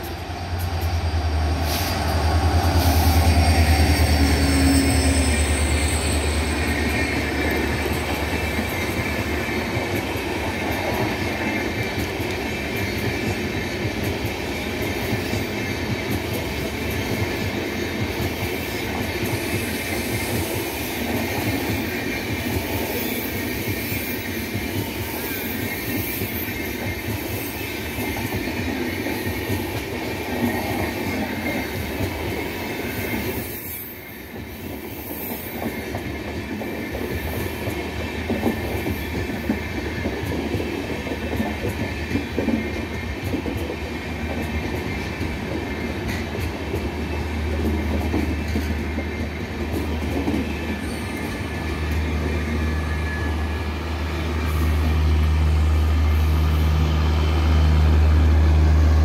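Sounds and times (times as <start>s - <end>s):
train wheels running on rails: 0.0s - 59.0s.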